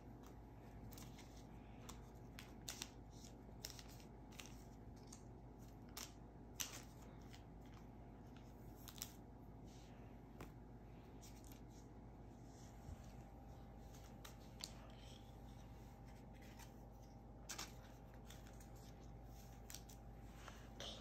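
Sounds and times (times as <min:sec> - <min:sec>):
cards clicking on stone counter: 0:01.9 - 0:07.8.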